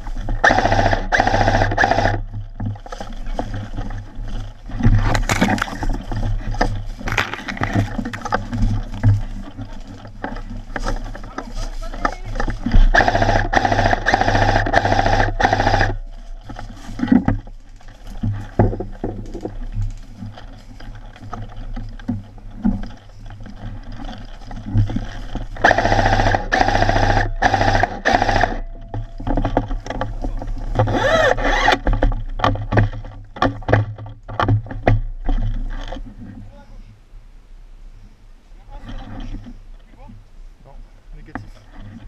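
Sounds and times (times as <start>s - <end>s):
gearbox whine: 0.0s - 36.0s
airsoft rifle full-auto bursts: 0.4s - 2.2s, 12.9s - 16.0s, 25.6s - 28.6s
footsteps in dry leaves: 2.9s - 13.4s.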